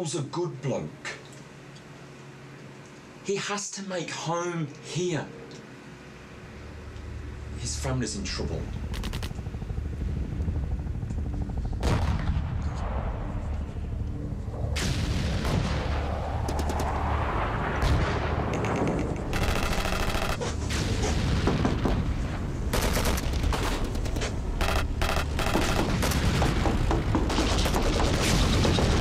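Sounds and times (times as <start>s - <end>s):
steady low rumble: 6.0s - 29.0s
booming explosions: 11.8s - 13.4s, 14.7s - 29.0s
automatic gunfire: 19.3s - 20.5s, 22.7s - 29.0s.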